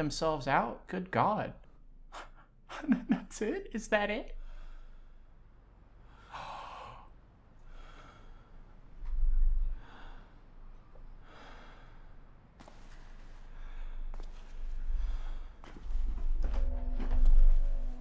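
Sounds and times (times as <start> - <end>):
person sighing breaths: 6.1 - 8.6.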